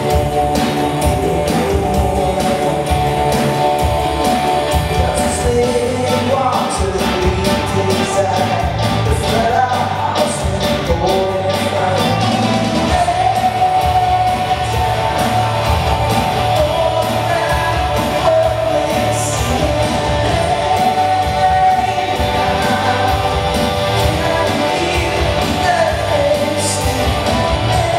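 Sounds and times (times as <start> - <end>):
acoustic guitar: 0.0 - 27.9
bass guitar: 0.0 - 27.9
drum kit strokes: 0.0 - 27.9
person singing: 0.0 - 27.9
worship band playing: 0.0 - 27.9.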